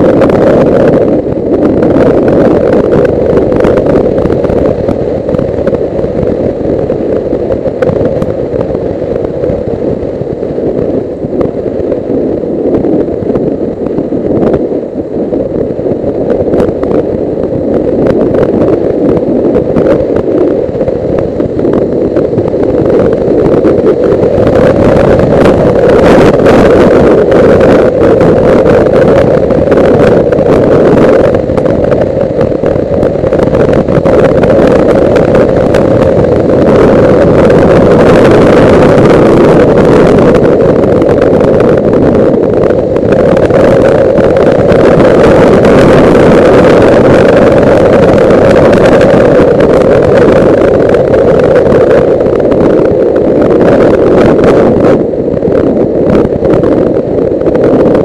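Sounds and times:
wind noise on microphone: 0:00.0 - 0:58.0.

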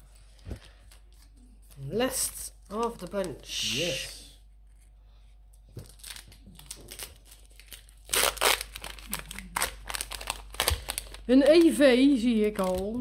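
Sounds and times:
foil wrapper tearing and crinkling: 0:05.8 - 0:13.0.

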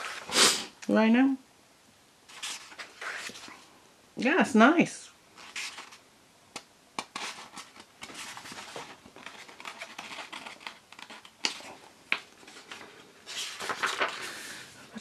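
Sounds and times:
paper pages rustling: 0:02.3 - 0:03.6, 0:05.4 - 0:06.0, 0:07.0 - 0:14.6.

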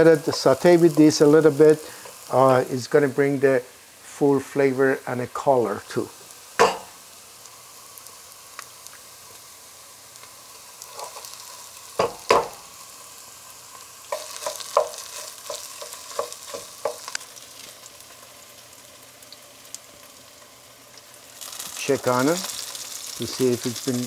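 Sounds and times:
food sizzling in oil: 0:00.0 - 0:24.0
wooden spoon knocking on pot: 0:14.1 - 0:17.1.

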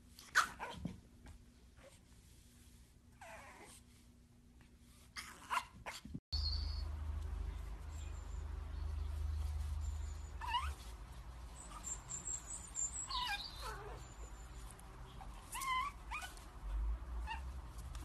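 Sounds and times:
puppy whining: 0:03.2 - 0:03.9, 0:10.0 - 0:10.9, 0:11.5 - 0:16.4.

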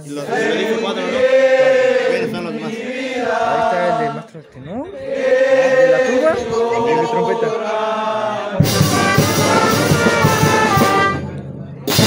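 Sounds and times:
wind band playing: 0:05.1 - 0:12.0
brass chords: 0:05.3 - 0:12.0
bass drum and cymbals: 0:08.6 - 0:12.0.

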